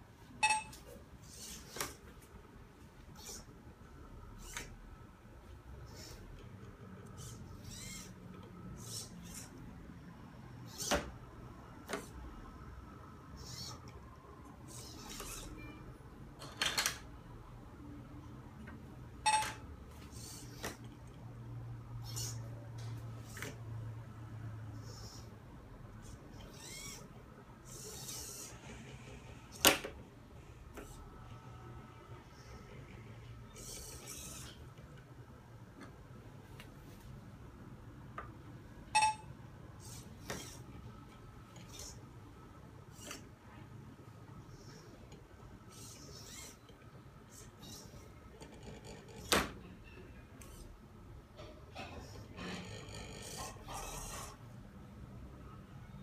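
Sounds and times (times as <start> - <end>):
servo motors whirring: 3.2 - 3.5, 5.8 - 6.4, 7.0 - 8.2, 8.8 - 9.6, 13.4 - 14.0, 14.7 - 15.7, 22.0 - 22.4, 26.0 - 29.6, 33.5 - 34.6, 39.8 - 40.7, 45.7 - 46.6.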